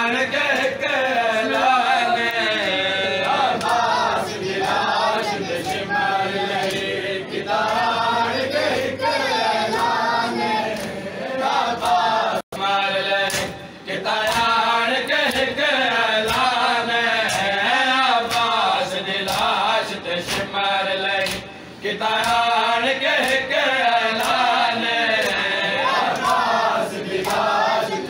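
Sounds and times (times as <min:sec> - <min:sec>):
men chanting in unison: 0:00.0 - 0:28.0
hands slapping chests: 0:13.2 - 0:13.6, 0:19.2 - 0:19.5, 0:21.2 - 0:21.5.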